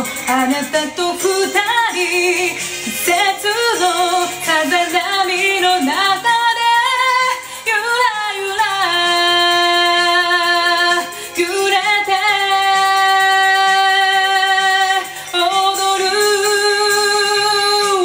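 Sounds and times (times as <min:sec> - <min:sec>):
karaoke backing track: 0:00.0 - 0:18.0
woman singing pop ballad: 0:00.0 - 0:18.0.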